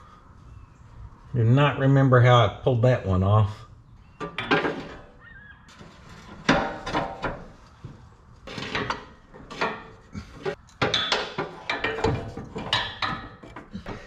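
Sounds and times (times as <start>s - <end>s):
metal clanks and rattles of tools: 4.2s - 7.6s, 8.4s - 14.0s.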